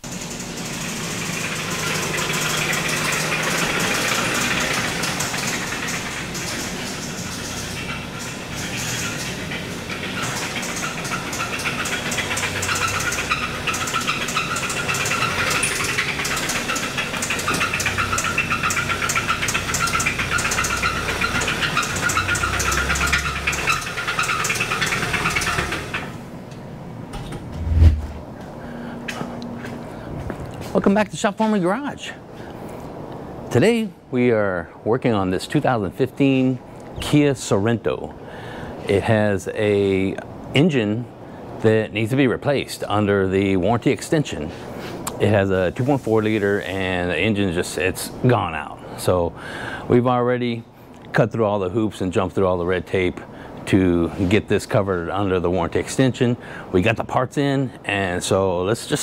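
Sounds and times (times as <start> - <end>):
car engine knocking rapidly: 0.0 - 26.1.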